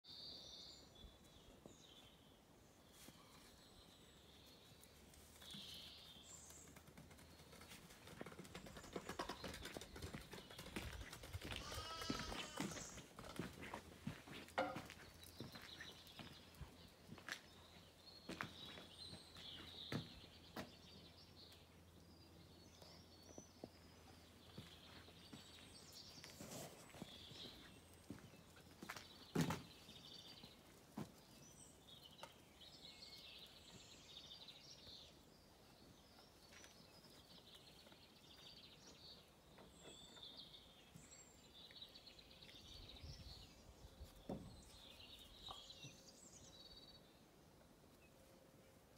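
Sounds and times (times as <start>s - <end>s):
faint birdsong: 0.0s - 48.9s
rural background noise: 0.1s - 48.9s
dogs trotting taps and scuffs: 4.9s - 20.8s.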